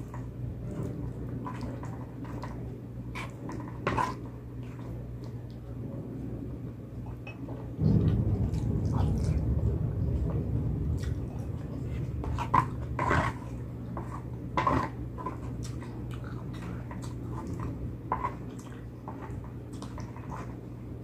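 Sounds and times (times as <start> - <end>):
low rumble: 7.8 - 15.6.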